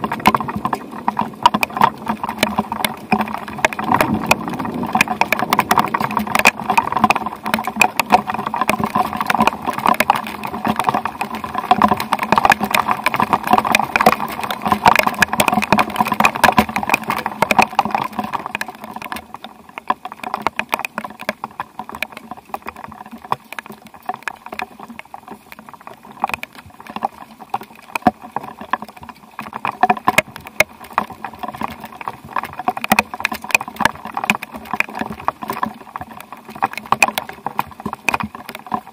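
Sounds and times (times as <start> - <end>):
rain pattering: 0.0 - 38.9.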